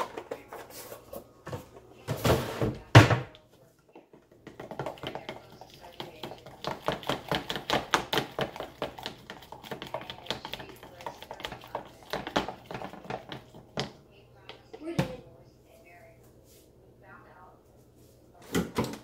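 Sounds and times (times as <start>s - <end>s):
spoon stirring batter in plastic cup: 3.6s - 14.8s.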